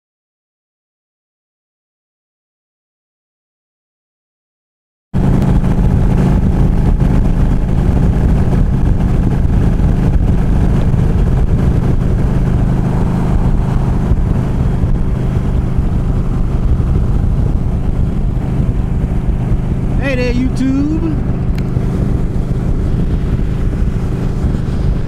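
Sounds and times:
motorcycle engine droning: 5.2 - 25.0
wind noise: 5.2 - 25.0.

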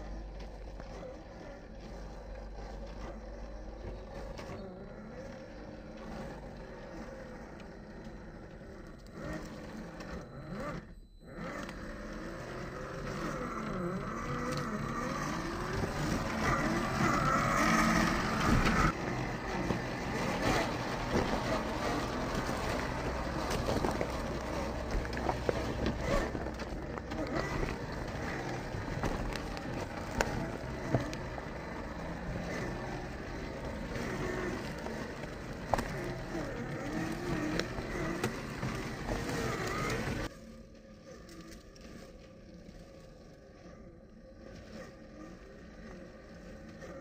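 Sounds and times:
electric motor running: 0.0 - 47.0
tyres clicking and knocking on stones: 14.5 - 40.3.

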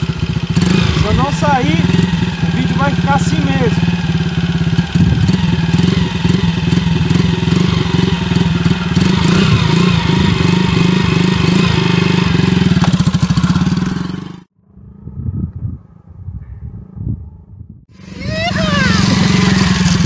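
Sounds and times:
motorcycle engine putter: 12.6 - 13.6.

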